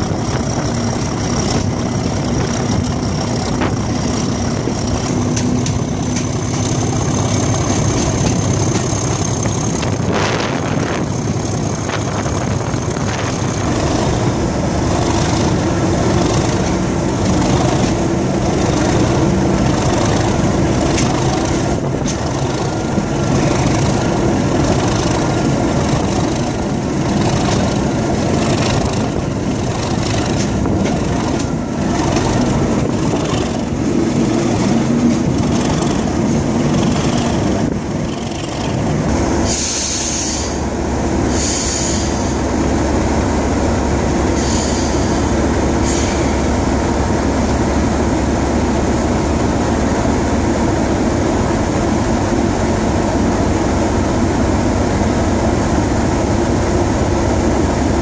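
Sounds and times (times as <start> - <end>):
wheels clicking over rail: 0.0 - 10.2, 10.9 - 39.6
diesel locomotive engine running: 0.0 - 58.0
short high hisses: 39.4 - 40.6, 41.3 - 42.4, 44.3 - 45.2.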